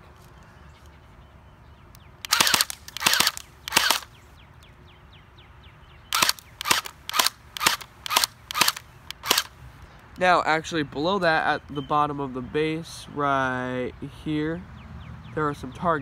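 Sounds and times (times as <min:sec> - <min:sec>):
airsoft gun firing: 0:02.3 - 0:04.1, 0:06.2 - 0:09.5.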